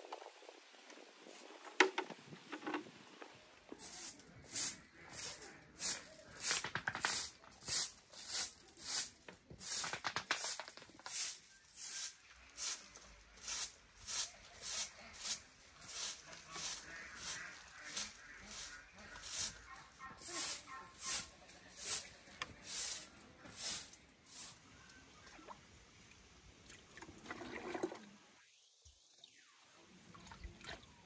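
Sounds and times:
broom sweeping dirt floor: 1.0 - 24.7.

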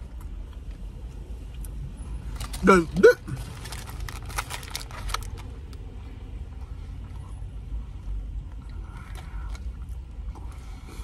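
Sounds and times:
low rumble in car cabin: 0.0 - 11.0
paper wrapper crackling: 2.3 - 5.7.

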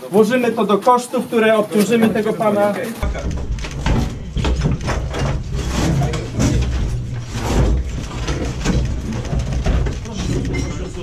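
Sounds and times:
knocks and scraping of boards: 3.0 - 11.0.

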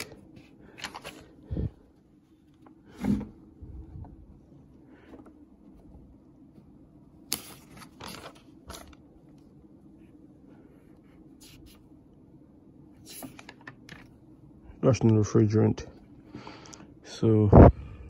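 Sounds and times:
paper pages turning: 0.0 - 1.4, 7.2 - 9.1, 13.0 - 14.2.

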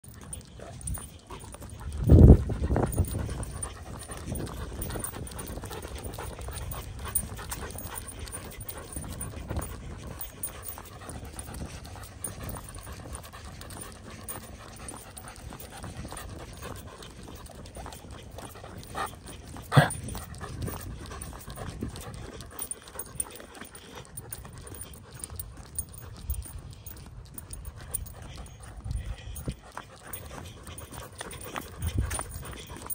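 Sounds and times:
dog panting: 0.0 - 32.9.

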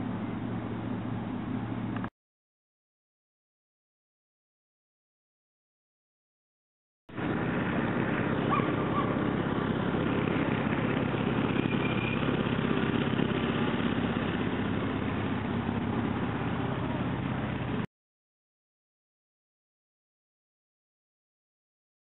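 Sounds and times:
truck engine idling: 7.1 - 17.9.

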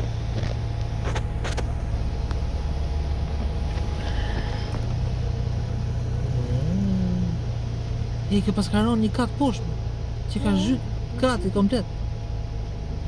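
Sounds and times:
car rumbling on the move: 0.0 - 13.0.

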